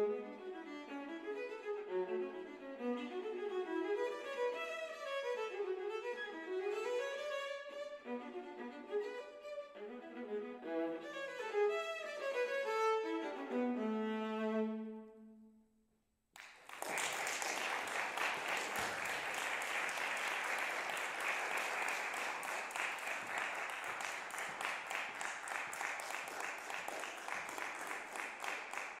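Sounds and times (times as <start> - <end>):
audience applauding: 16.4 - 29.0.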